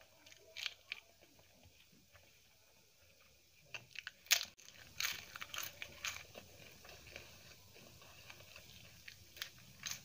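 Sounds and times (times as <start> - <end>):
crisp wafer crunching: 0.0 - 1.6, 3.7 - 10.0
faint chewing: 0.0 - 10.0.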